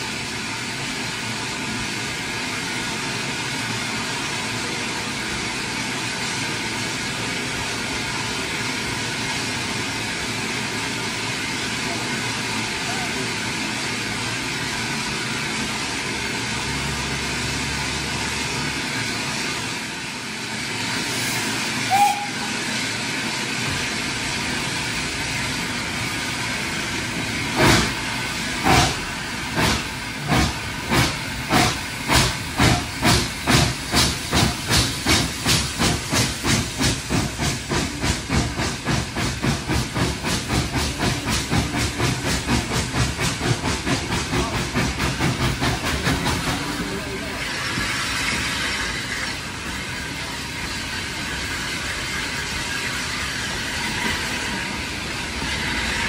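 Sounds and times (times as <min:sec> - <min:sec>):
steam locomotive hissing: 0:00.0 - 0:56.0
locomotive exhaust beats: 0:21.8 - 0:56.0
whistle-like note: 0:21.9 - 0:22.5.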